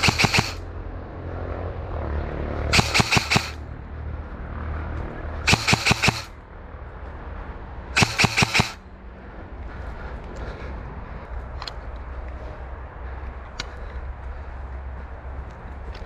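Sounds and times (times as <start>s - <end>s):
airsoft rifle firing bursts: 0.0s - 0.6s, 2.7s - 3.6s, 5.5s - 6.3s, 8.0s - 8.8s.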